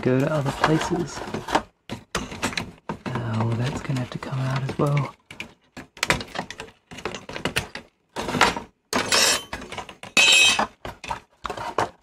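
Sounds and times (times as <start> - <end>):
plastic sheet crackling scrapes: 0.0 - 1.7.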